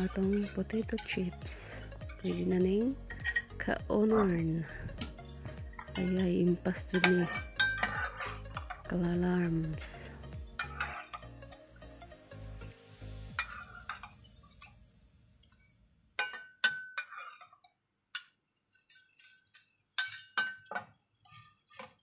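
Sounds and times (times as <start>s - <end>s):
metal spatula clinking on strainer: 0.0s - 4.6s, 5.8s - 9.0s, 9.8s - 11.3s, 16.2s - 18.3s, 18.9s - 20.9s.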